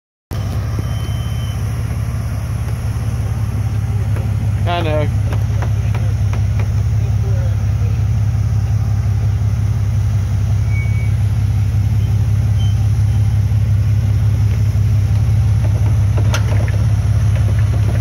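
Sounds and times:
car engine running near idle: 0.3s - 18.0s.

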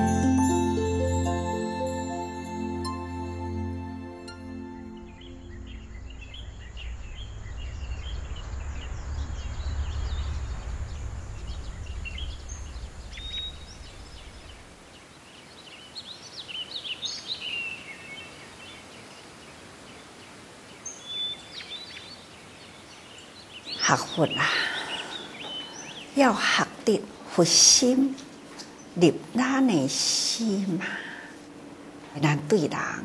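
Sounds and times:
low rumble: 5.0s - 14.9s
small birds chirping: 5.0s - 31.0s.

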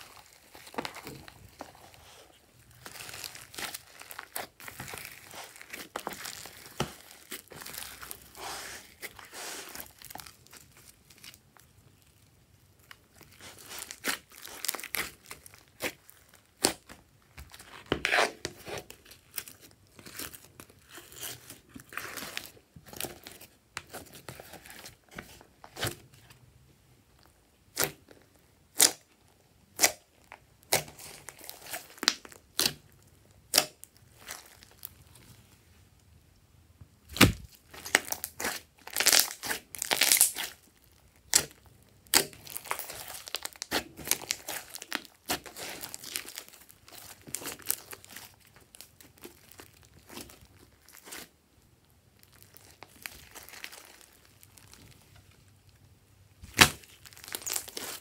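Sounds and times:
slime squishing and crackling: 0.0s - 26.4s, 27.1s - 35.4s, 37.0s - 58.0s.

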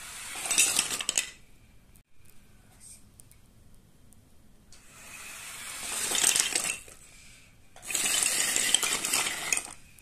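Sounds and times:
toy truck motor whirring: 0.0s - 1.2s, 4.8s - 7.0s, 7.8s - 9.8s.

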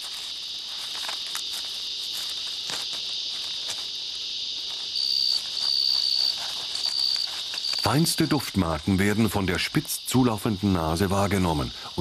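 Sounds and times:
faint rustling clicks: 0.0s - 4.0s, 4.6s - 8.1s
insects chirring: 0.0s - 12.0s
shrill insect trill: 0.0s - 12.0s.

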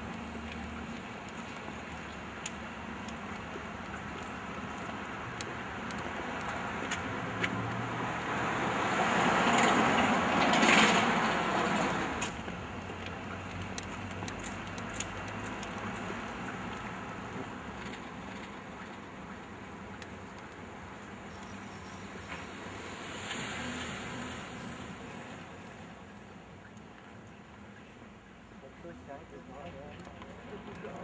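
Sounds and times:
street background noise: 0.0s - 31.0s
car driving past: 7.2s - 12.3s.

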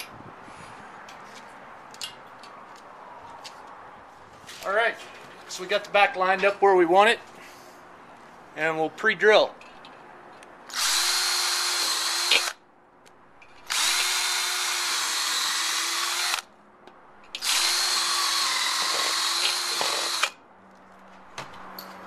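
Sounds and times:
power drill boring into wood: 10.7s - 12.6s, 13.7s - 16.4s, 17.4s - 20.4s.

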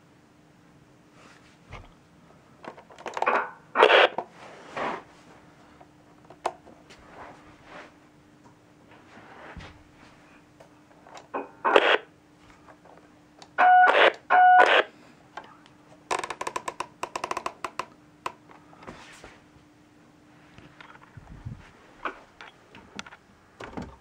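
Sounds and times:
faint steady hum: 0.0s - 24.0s
radio speaker bursts: 3.8s - 4.1s, 11.6s - 12.1s, 13.6s - 14.9s.

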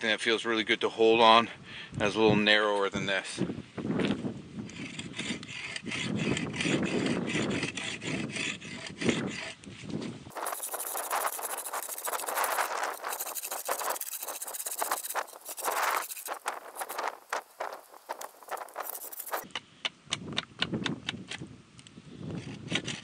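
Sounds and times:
knife scraping wooden shaft: 4.7s - 9.6s, 10.3s - 19.5s.

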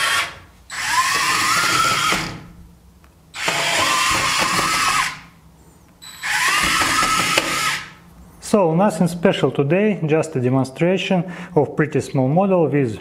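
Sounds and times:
toy rover motors whining: 0.0s - 2.4s, 3.4s - 5.2s, 6.0s - 7.9s.

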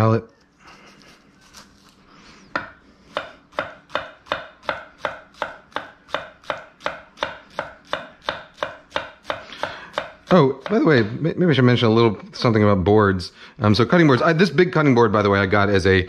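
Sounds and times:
knife chopping on wooden board: 2.5s - 11.0s.

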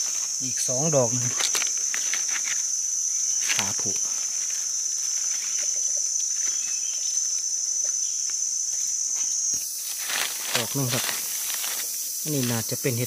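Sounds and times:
insects chorus: 0.0s - 13.0s
rustling of dry leaves: 0.0s - 13.0s.

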